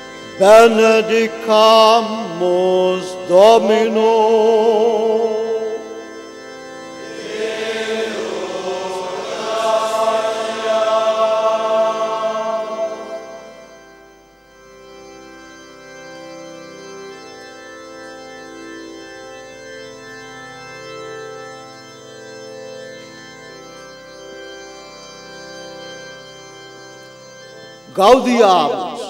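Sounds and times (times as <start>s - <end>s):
soft held organ notes: 0.0s - 29.0s
choir singing a chant: 7.0s - 13.9s, 28.0s - 29.0s.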